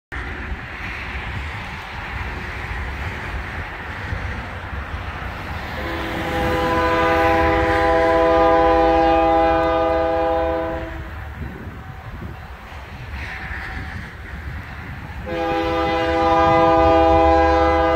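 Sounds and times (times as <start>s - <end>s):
road noise: 0.1s - 17.9s
wind noise: 0.1s - 17.9s
locomotive air horn: 5.8s - 11.2s, 15.2s - 17.9s.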